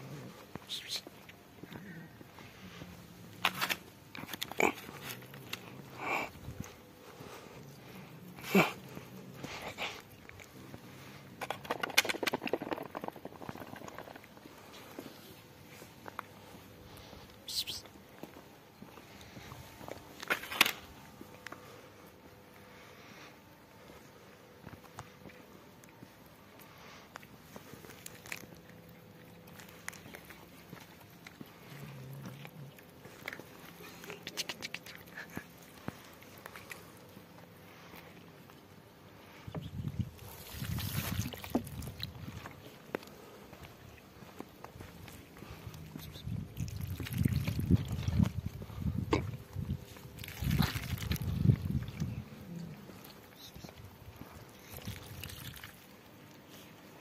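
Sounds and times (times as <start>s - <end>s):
cat chewing chicken: 26.6s - 38.7s, 41.3s - 56.8s
food pattering onto asphalt: 27.1s - 37.4s.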